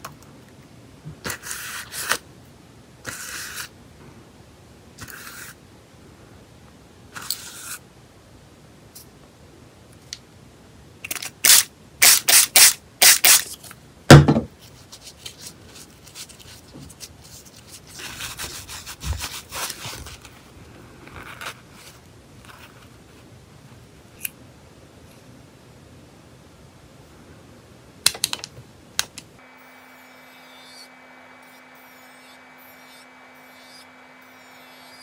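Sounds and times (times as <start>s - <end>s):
loud thump: 14.1s - 14.5s.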